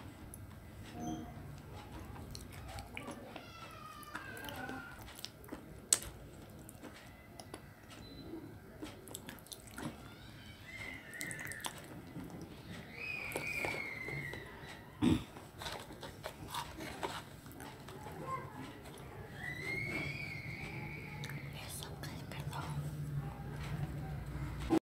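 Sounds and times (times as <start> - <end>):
person chewing and lip smacking: 2.2 - 3.4, 4.0 - 8.0, 8.8 - 10.1, 11.1 - 12.5.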